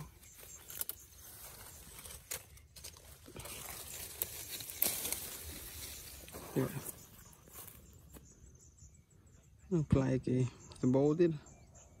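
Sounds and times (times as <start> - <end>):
leaves rustling: 0.0 - 8.2
stems snapping: 0.4 - 6.1.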